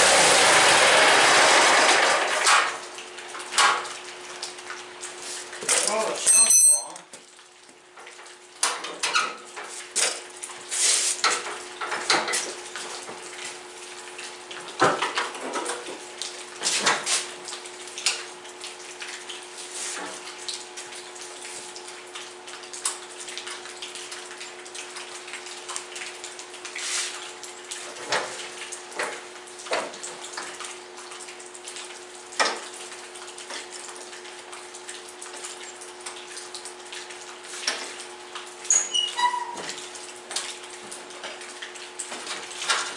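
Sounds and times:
metallic clinks of hand tools: 5.8 - 7.0.

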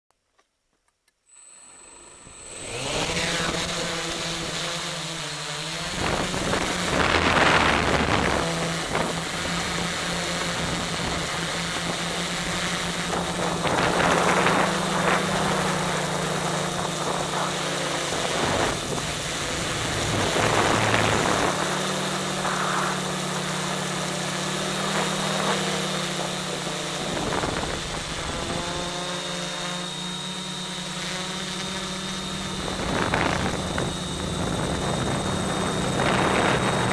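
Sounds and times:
drone motors buzzing: 1.3 - 36.9
rushing air: 13.0 - 28.7.

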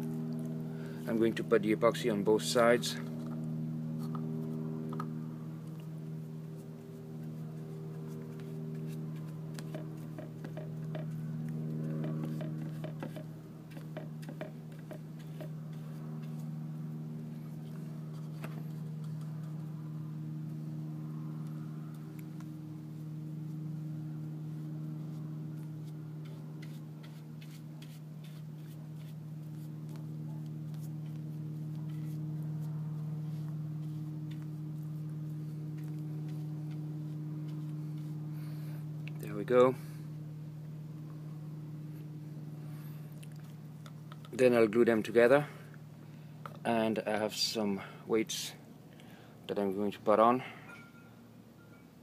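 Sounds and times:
steady low hum: 0.0 - 52.0
brush tapping on wood: 7.9 - 16.4.

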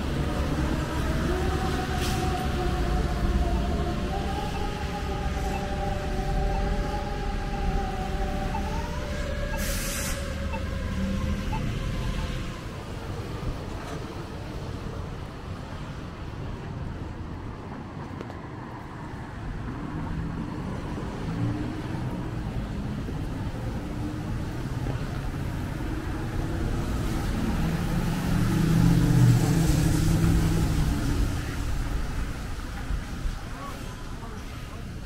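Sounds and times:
tyre hiss on wet pavement: 9.6 - 10.4
passing vehicle engine hum: 18.0 - 35.0.

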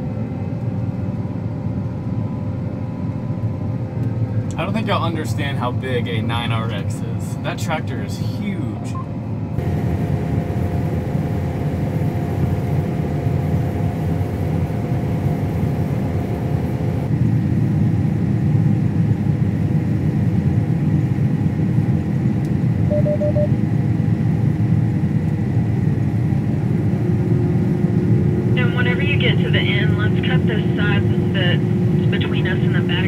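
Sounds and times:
combine harvester engine rumble: 0.0 - 17.2, 24.3 - 33.0
small beeps: 22.9 - 23.5.

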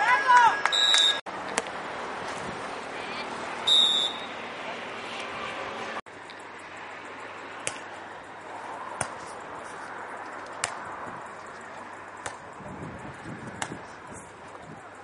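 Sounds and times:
steady background noise: 0.0 - 15.0
volleyball being struck: 7.6 - 7.9, 9.0 - 9.2, 10.6 - 10.8, 12.2 - 12.4.

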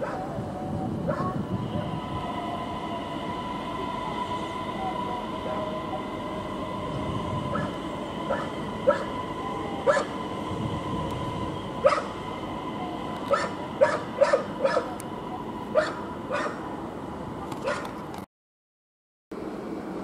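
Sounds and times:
steady hum: 0.3 - 17.4
dog barking: 8.3 - 9.1, 9.9 - 10.1, 11.8 - 12.1, 13.3 - 14.9, 15.8 - 16.6, 17.6 - 17.9.

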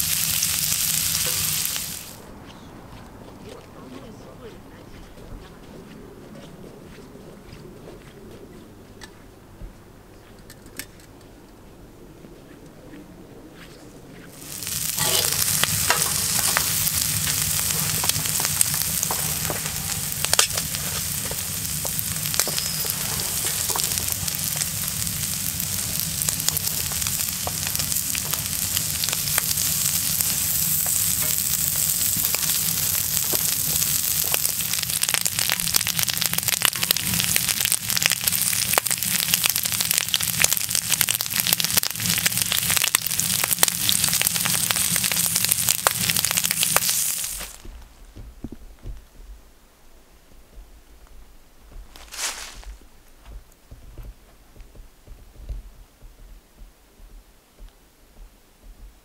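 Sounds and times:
food sizzling in a frying pan: 0.0 - 2.3, 14.3 - 47.7.

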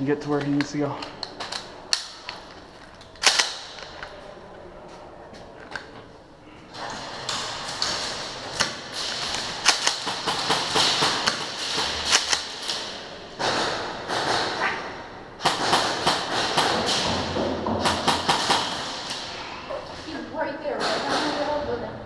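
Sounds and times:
airsoft guns firing: 3.2 - 4.0, 7.0 - 14.7, 15.4 - 19.3.

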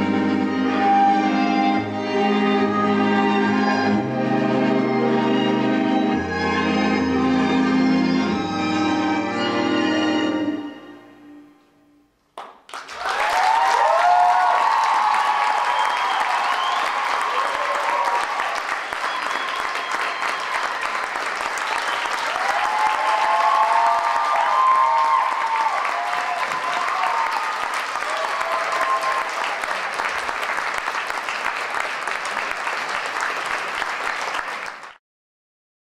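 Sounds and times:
audience applauding: 12.4 - 35.0.

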